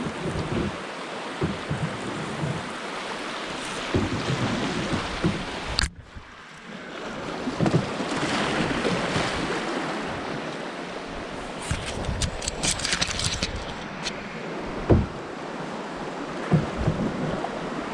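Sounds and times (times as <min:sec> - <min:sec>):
branches scratching along canoe: 0:00.0 - 0:06.1, 0:07.1 - 0:17.9.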